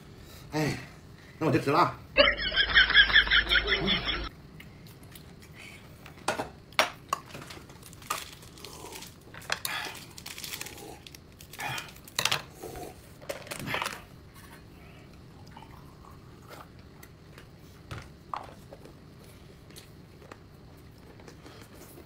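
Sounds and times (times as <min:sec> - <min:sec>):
crunchy bites: 0:07.7 - 0:12.2.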